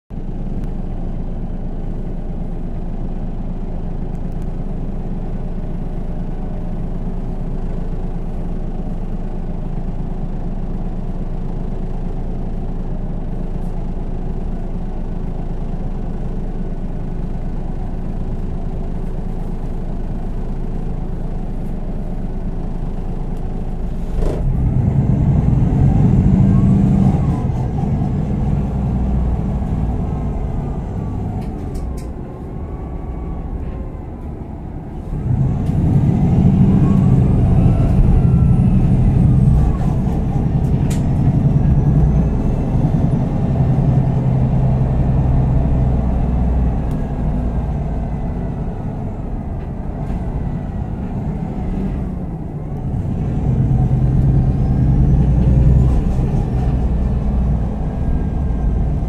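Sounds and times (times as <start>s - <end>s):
bus engine idling: 0.1s - 59.0s
engine revving with rising whine: 24.1s - 59.0s.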